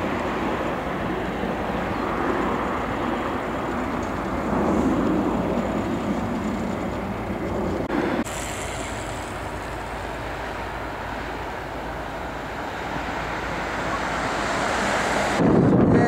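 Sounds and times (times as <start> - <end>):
jet engine roar: 0.0 - 16.0.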